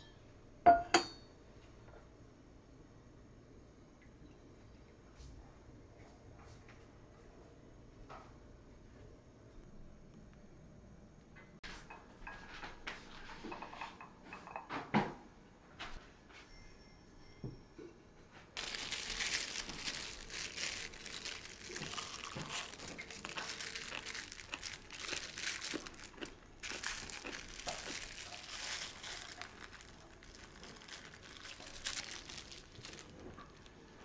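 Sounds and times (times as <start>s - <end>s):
plastic wrap crinkling: 18.6s - 34.0s.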